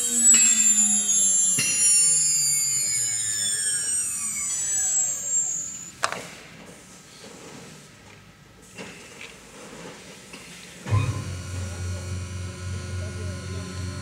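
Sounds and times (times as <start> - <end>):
router spindle whining down: 0.0 - 6.1, 10.9 - 14.0.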